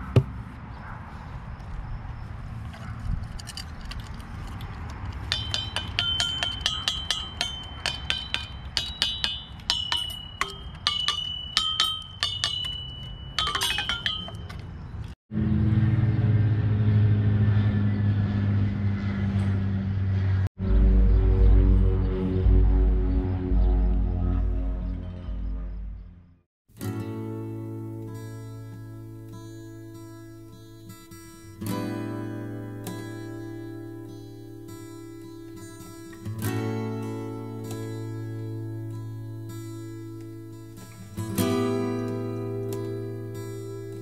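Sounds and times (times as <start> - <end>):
metal chime bars struck with stick: 5.3 - 14.6.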